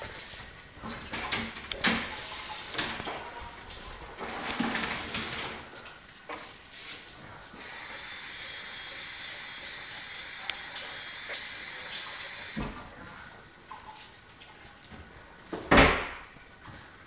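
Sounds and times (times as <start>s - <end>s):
water running from tap: 7.6s - 12.7s.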